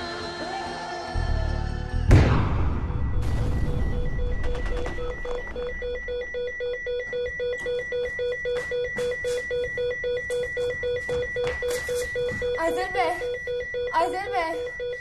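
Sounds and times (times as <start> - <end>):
electronic alarm beeping: 3.0 - 15.0.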